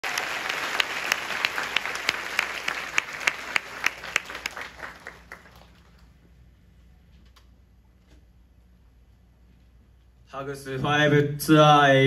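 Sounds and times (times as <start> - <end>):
audience applauding: 0.0 - 6.2
close hands clapping: 0.0 - 6.2.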